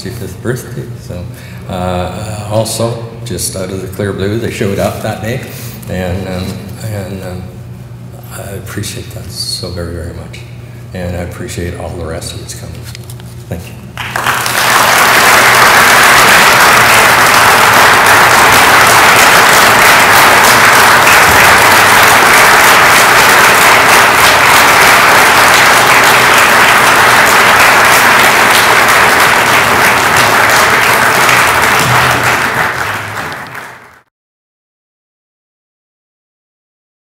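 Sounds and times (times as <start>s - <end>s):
crowd applauding: 14.0s - 34.1s.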